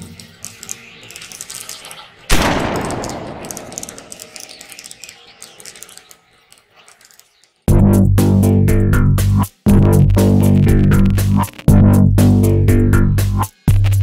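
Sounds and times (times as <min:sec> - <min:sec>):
light crackling clicks: 0:00.0 - 0:07.7
loud gunshot-like bang echoing: 0:02.3 - 0:04.2.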